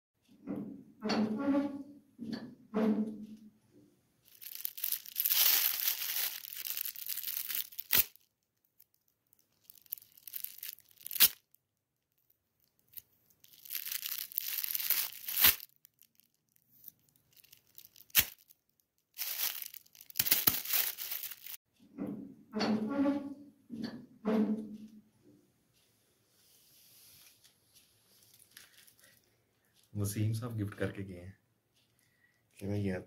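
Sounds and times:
foil wrap crinkling and tearing: 4.3s - 11.5s, 12.9s - 21.6s, 28.3s - 29.2s.

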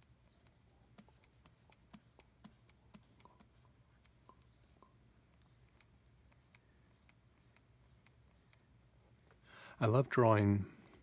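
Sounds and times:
low room hum: 0.0s - 11.0s
stylus tapping on tablet screen: 0.9s - 8.6s.

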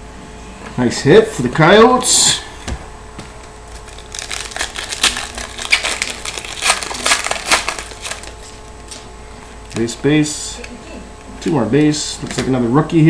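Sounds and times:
foil wrapper crinkling and tearing: 3.7s - 9.0s.

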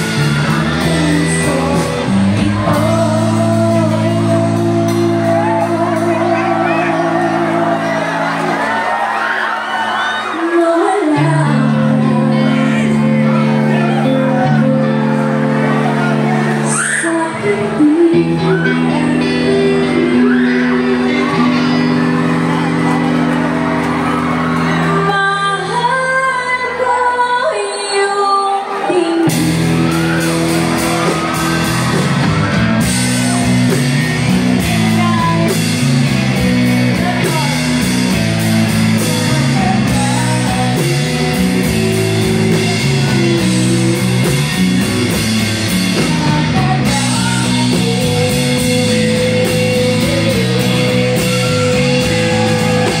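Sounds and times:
live pop-rock band playing: 0.0s - 53.0s
woman singing: 0.1s - 8.4s, 10.1s - 13.0s, 16.6s - 21.8s, 24.9s - 30.0s, 34.6s - 35.7s, 38.9s - 44.9s, 45.8s - 53.0s.

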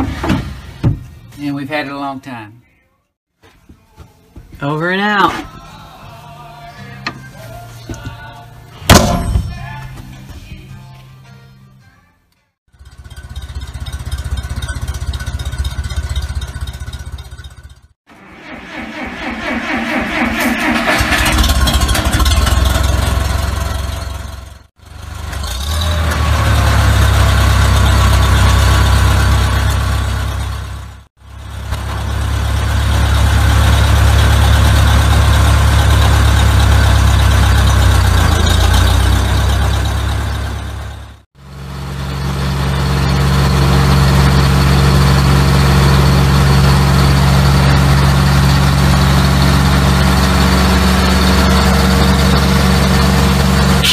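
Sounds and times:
tractor engine running: 12.7s - 53.9s.

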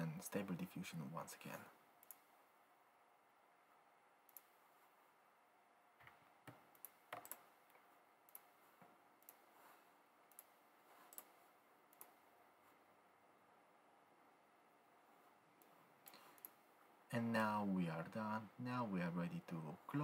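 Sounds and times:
computer mouse clicking: 2.0s - 2.3s, 4.3s - 4.6s, 6.0s - 12.2s, 15.6s - 16.6s.

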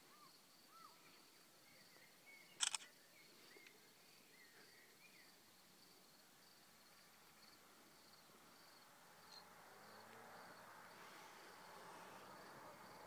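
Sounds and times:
small birds chirping: 0.0s - 5.5s
sharp clicks: 2.6s - 2.9s.

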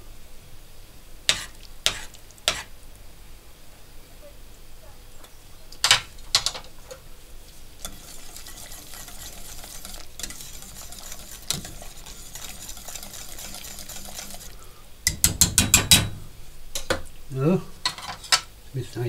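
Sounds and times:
whisk swishing in a metal pot: 7.5s - 14.7s
whisk clicking against a pot: 7.8s - 16.1s.

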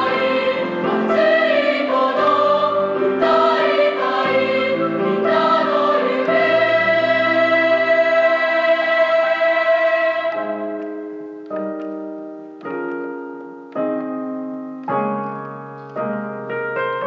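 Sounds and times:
choir holding chord: 0.0s - 11.0s
digital piano chords: 0.0s - 17.0s.

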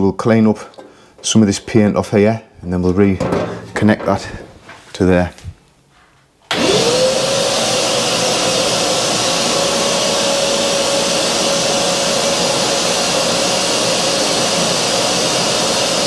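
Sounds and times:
vacuum cleaner running: 6.5s - 16.0s.

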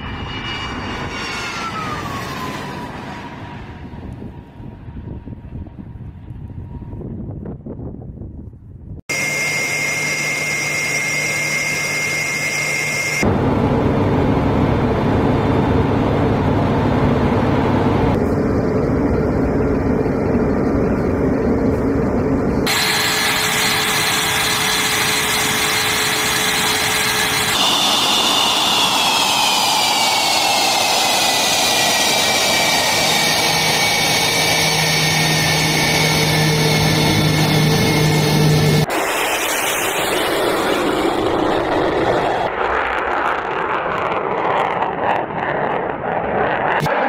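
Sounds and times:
jet engine roar: 0.0s - 7.9s, 9.0s - 47.0s
high turbine whine: 0.0s - 8.0s, 9.1s - 47.0s.

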